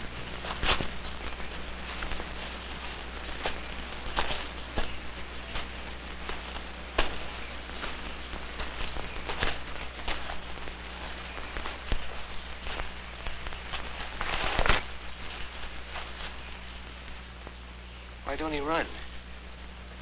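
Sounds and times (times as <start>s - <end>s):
film soundtrack crackles and ticks: 0.0s - 20.0s
steady low hum: 0.0s - 20.0s.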